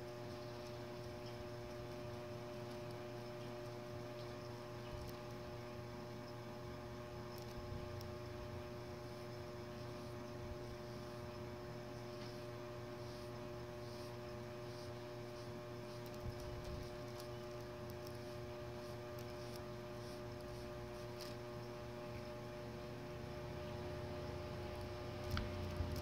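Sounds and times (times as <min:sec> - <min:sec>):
steady electrical hum: 0:00.0 - 0:26.0
paint dabs on paper: 0:12.0 - 0:21.4.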